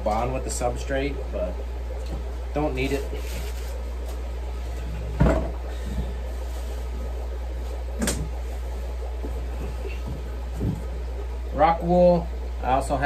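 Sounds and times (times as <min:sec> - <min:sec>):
steady low hum: 0:00.0 - 0:13.0
dull knocks of objects set down: 0:05.2 - 0:05.6.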